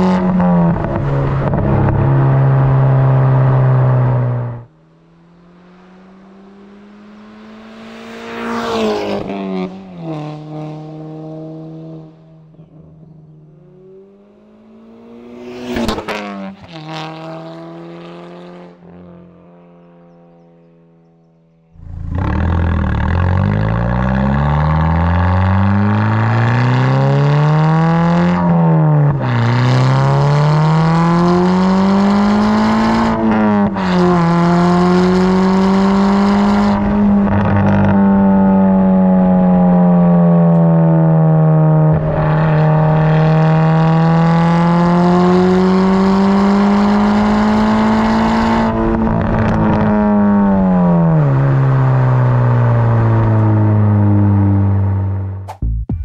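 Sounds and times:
car exhaust revving: 21.7s - 56.0s.

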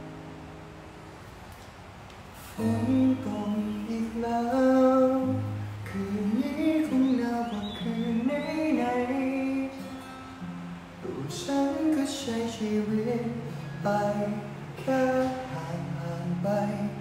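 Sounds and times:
acoustic guitar strumming: 0.0s - 1.5s, 2.4s - 17.0s
man singing: 2.5s - 10.1s, 11.0s - 17.0s.

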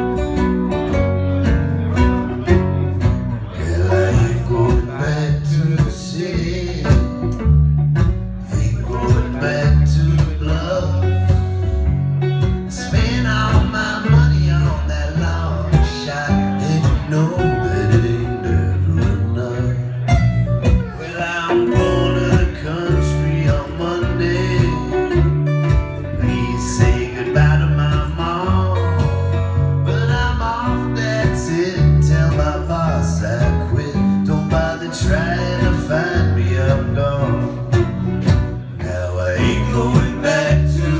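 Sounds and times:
electric bass line: 0.0s - 40.9s
strummed acoustic guitars: 0.0s - 40.9s
men singing: 3.5s - 7.2s, 8.4s - 11.4s, 12.7s - 20.1s, 20.9s - 25.2s, 26.1s - 37.9s, 38.7s - 40.9s.

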